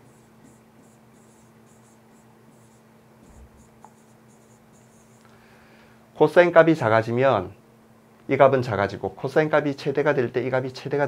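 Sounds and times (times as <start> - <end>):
stylus scratching on tablet: 0.0 - 5.2
low steady hum: 0.0 - 11.0.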